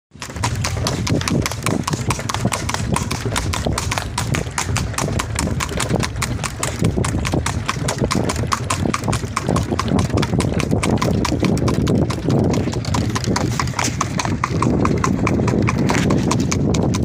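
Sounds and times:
horse hooves clopping on asphalt: 0.1s - 17.0s
steady low rumble: 0.2s - 17.0s.

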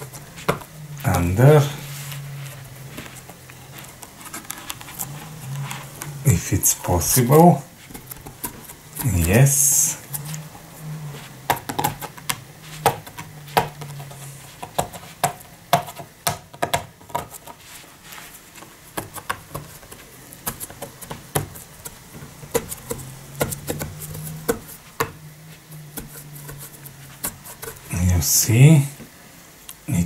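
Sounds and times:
low hum: 0.0s - 14.6s
fingernail scratching paper label: 25.7s - 28.0s.

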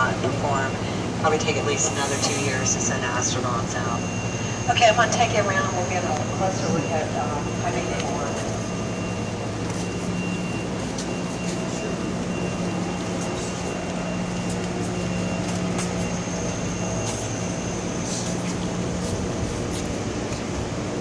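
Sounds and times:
faint high whine: 0.0s - 21.0s
industrial fans humming: 0.0s - 21.0s.

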